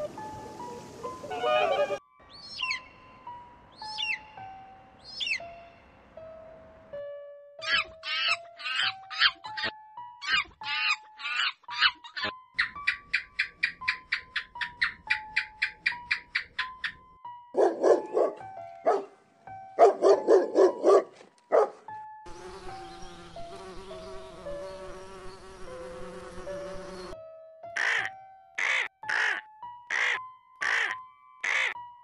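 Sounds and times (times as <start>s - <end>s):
soft background music: 0.0s - 32.0s
loud rhythmic animal calls: 7.6s - 17.0s, 27.8s - 31.8s
bees buzzing: 22.3s - 27.2s
harsh animal calls: 27.8s - 31.8s.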